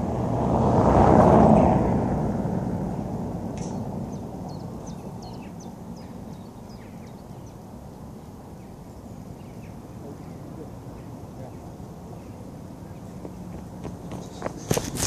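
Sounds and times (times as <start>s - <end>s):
bird chirping: 3.6s - 14.8s.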